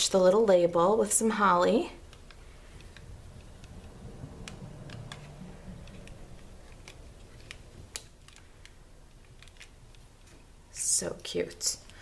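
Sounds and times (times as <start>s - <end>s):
hands tapping cardstock: 2.0s - 10.5s.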